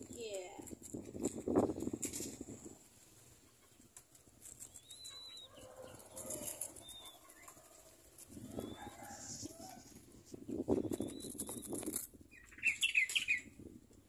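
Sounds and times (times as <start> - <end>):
high bird chirps: 4.7 - 5.7, 10.5 - 13.6.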